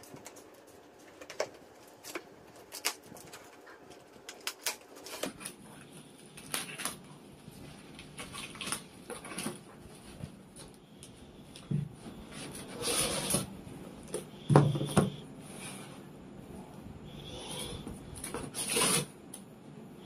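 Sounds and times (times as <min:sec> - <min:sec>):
cardboard and wrapping rustling: 0:00.0 - 0:10.8.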